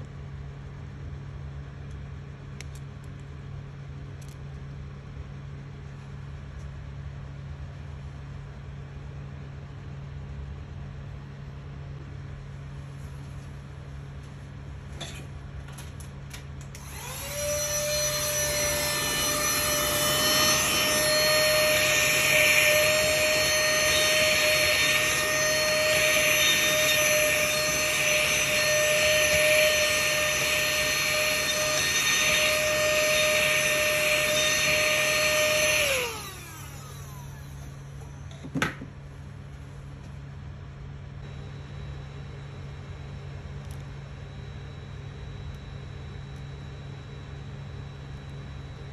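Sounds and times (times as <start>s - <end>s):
handheld vacuum cleaner whine: 16.7s - 38.8s.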